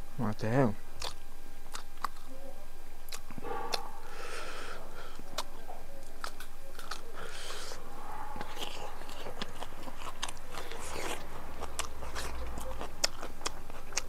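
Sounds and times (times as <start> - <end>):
soft chewing: 0.9 - 14.0
fingers picking through food: 1.0 - 2.4, 3.0 - 3.9, 5.1 - 7.8
mouth clicks: 3.0 - 4.3.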